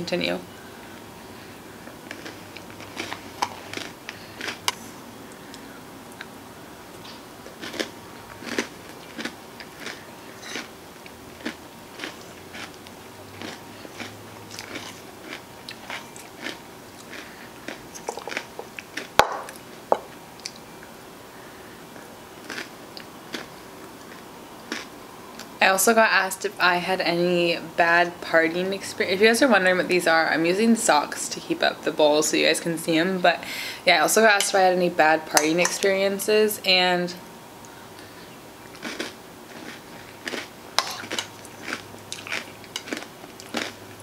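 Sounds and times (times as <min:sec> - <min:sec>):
chewing and mouth sounds: 0:02.1 - 0:06.3, 0:07.0 - 0:19.6, 0:38.7 - 0:43.8.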